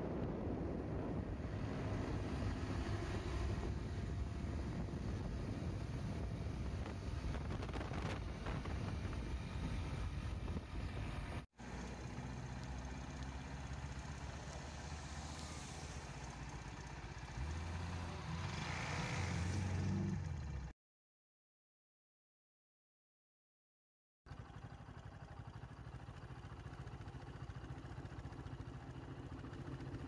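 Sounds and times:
wind on microphone: 0.0s - 11.4s.

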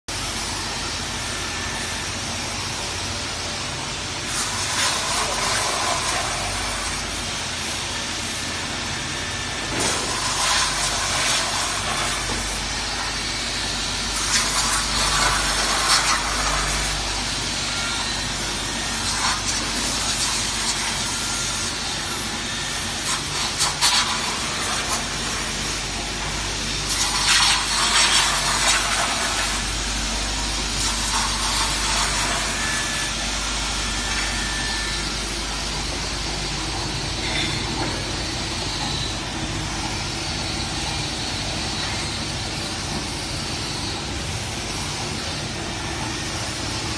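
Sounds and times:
machine motor hum: 0.1s - 46.9s.

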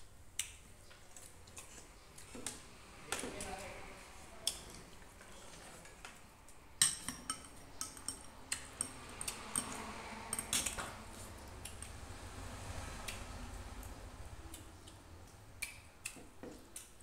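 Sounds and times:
metal spoon clinking on dishes: 6.8s - 11.0s.

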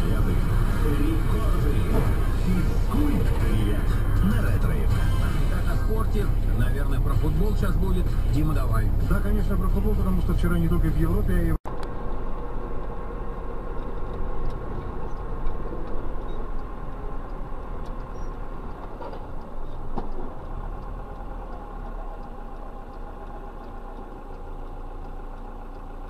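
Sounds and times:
car engine and road noise: 0.0s - 26.0s.

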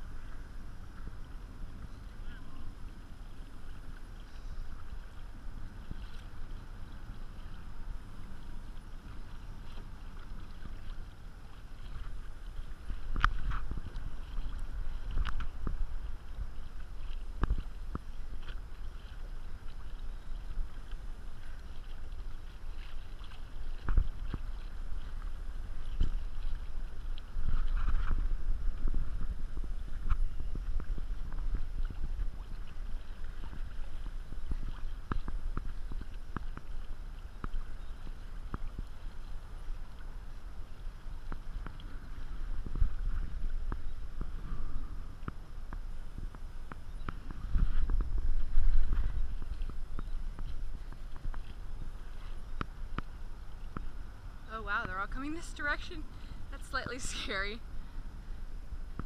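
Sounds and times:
waves slapping against kayak hull: 0.0s - 57.9s
wind rumble on microphone: 0.0s - 59.0s.

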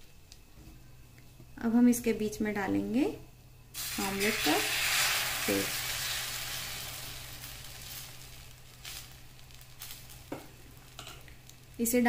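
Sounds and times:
batter sizzling in hot oil: 3.7s - 12.0s.

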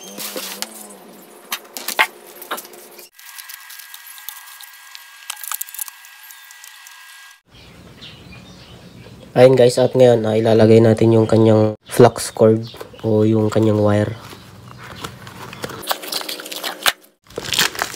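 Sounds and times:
plastic packaging rustling: 1.8s - 6.8s, 14.3s - 17.9s.

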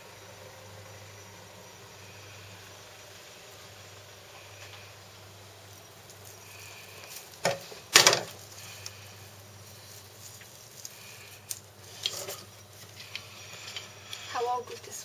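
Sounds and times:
plastic netting rustling: 5.7s - 13.3s.

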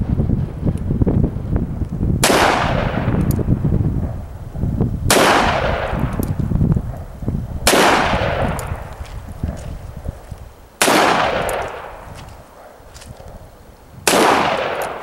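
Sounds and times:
revolver shots with echo: 5.1s - 6.2s.

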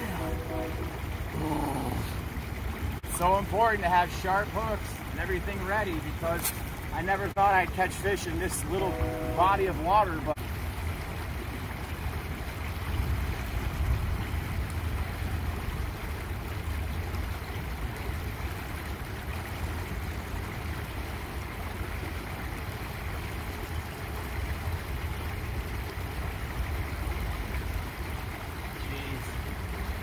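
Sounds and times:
water churning through pipes: 0.0s - 30.0s.

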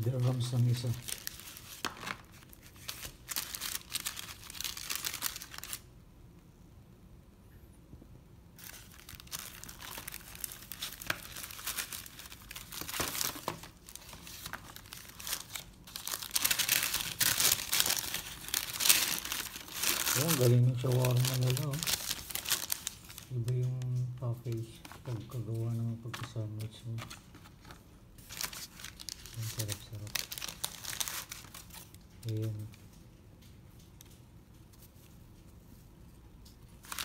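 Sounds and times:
paper wrapper crinkling: 0.0s - 5.9s, 8.6s - 35.8s, 36.4s - 37.0s.

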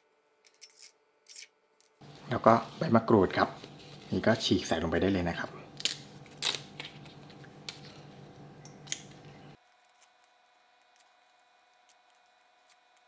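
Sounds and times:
low background hum: 0.0s - 13.0s
leaves tearing with crisp snaps: 5.8s - 8.0s.

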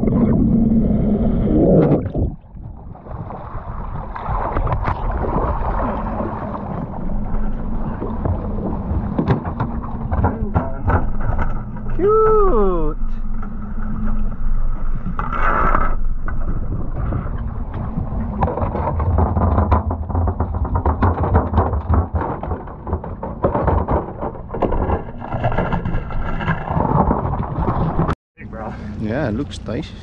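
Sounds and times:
boat engine humming: 0.0s - 18.4s, 28.4s - 30.0s
knocks and clatter on deck: 9.1s - 11.7s, 18.3s - 28.2s.

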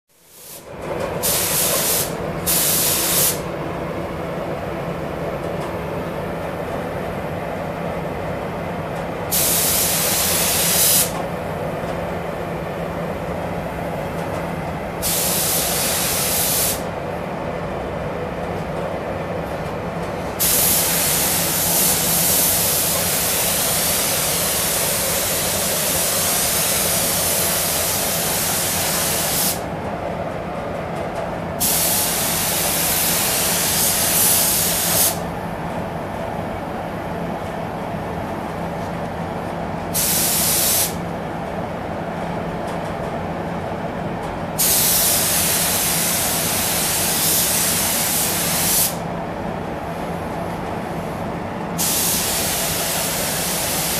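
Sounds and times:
ventilation hum: 0.2s - 53.9s
spray gun hissing: 1.2s - 3.4s, 9.3s - 11.2s, 15.0s - 16.9s, 20.4s - 29.6s, 31.6s - 35.2s, 40.0s - 41.0s, 44.6s - 49.0s, 51.8s - 53.9s.

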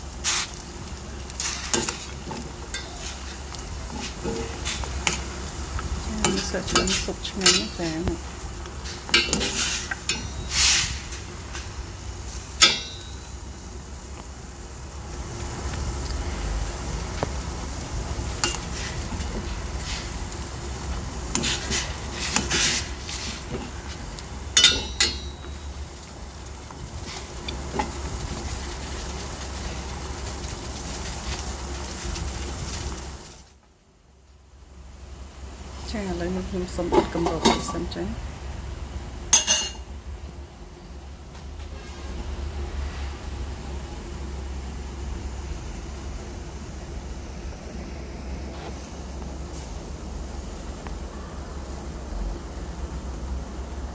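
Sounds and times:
metal spoon stirring in pot: 1.3s - 8.0s, 8.7s - 11.1s, 21.3s - 26.1s
spoon clinking and scraping pot: 1.7s - 3.3s, 9.1s - 10.8s, 24.6s - 25.6s, 39.4s - 39.8s.

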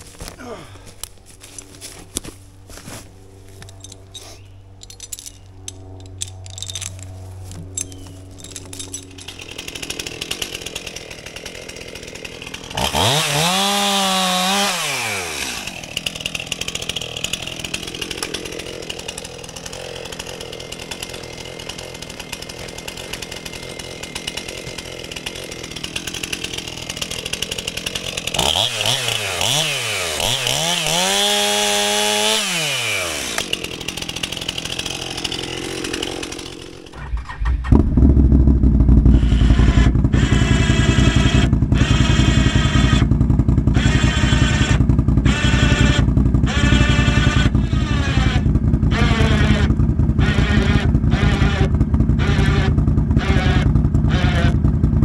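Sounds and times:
electric winch motor whine: 3.3s - 54.9s
low rumble: 37.0s - 40.1s.

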